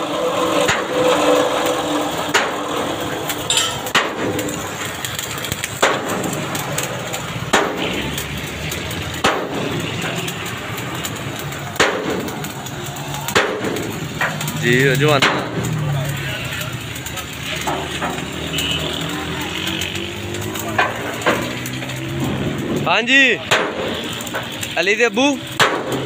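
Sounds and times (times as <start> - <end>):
steady background noise: 0.0 - 26.0
hammer striking steel: 2.3 - 4.6, 5.7 - 6.4, 7.5 - 7.9, 9.2 - 9.8, 11.7 - 12.5, 13.3 - 14.4, 15.2 - 15.6, 23.5 - 23.9, 25.6 - 26.0.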